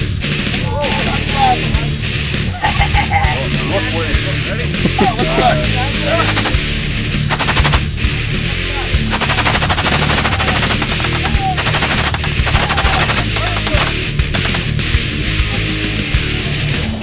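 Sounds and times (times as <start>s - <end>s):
heavy metal music: 0.0s - 17.0s
machine gun firing bursts: 6.2s - 6.6s, 7.3s - 8.0s, 9.1s - 14.9s.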